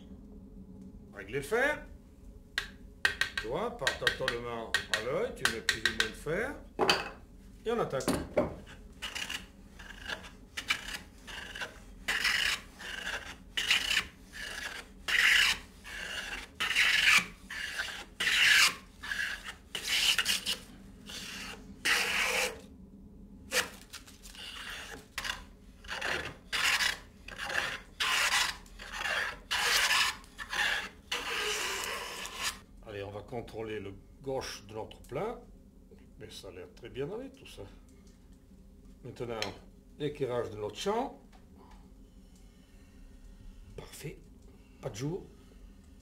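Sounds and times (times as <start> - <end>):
hand plane shaving wood: 9.0 - 22.6, 24.4 - 32.6.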